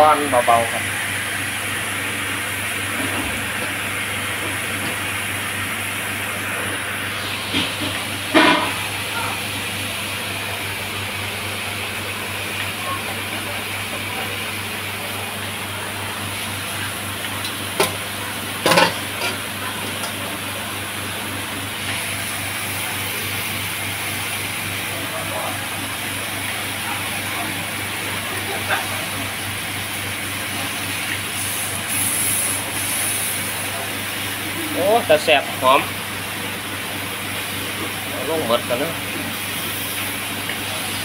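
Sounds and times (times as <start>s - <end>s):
ribs sizzling on grill pan: 30.6s - 34.4s.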